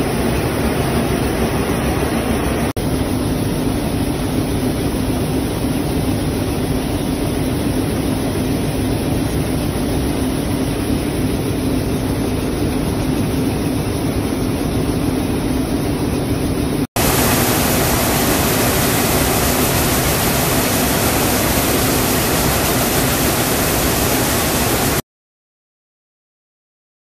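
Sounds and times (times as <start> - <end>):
factory machinery noise: 0.0 - 25.0
low hum: 0.0 - 25.0
bright hissy noise: 17.0 - 25.0.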